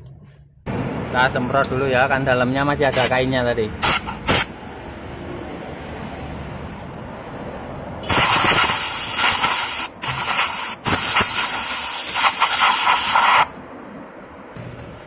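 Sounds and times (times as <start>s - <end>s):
hissing spray blast: 8.0s - 13.5s.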